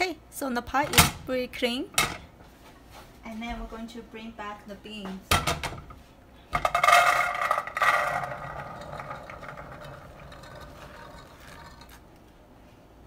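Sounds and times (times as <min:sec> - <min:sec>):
beans rattling into metal pot: 0:06.6 - 0:11.9.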